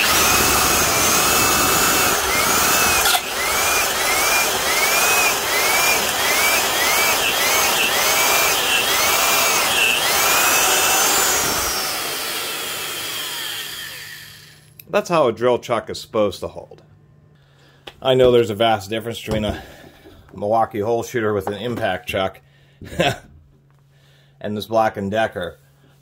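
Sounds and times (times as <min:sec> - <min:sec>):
drill boring into wood: 0:00.0 - 0:14.7
drill motor winding down: 0:00.0 - 0:14.8.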